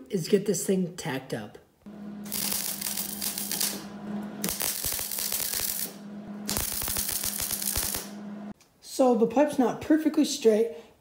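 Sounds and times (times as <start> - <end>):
steady hum: 1.9 - 8.6
welder arc crackling: 1.9 - 8.6.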